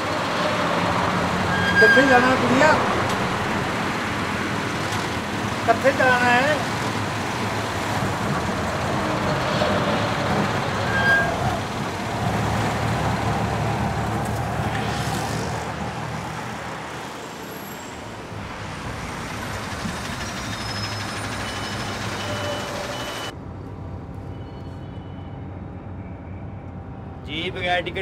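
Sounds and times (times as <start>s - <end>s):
street traffic: 0.0s - 28.0s
hum inside a bus: 19.3s - 27.4s.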